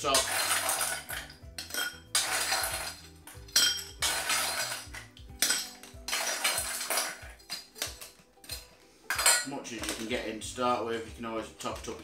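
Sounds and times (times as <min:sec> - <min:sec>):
ice rattling against metal bowl: 0:00.0 - 0:08.6
ice clinking into glass: 0:00.0 - 0:10.1.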